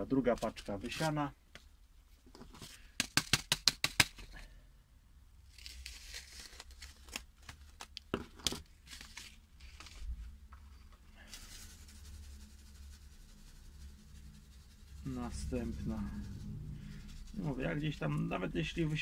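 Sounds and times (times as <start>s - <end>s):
paper packet clicks and crinkles: 5.5s - 10.1s
paper rustle: 5.5s - 10.4s.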